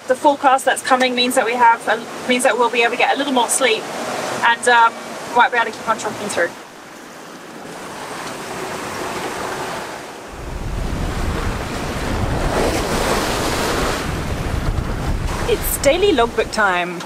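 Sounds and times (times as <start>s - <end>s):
waves and water rushing: 0.0s - 17.0s
deep wind rumble on microphone: 10.3s - 16.6s.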